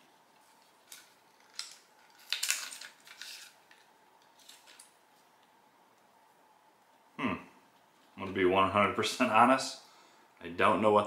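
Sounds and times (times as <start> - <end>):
packaging rustles and scrapes: 0.4 - 5.2.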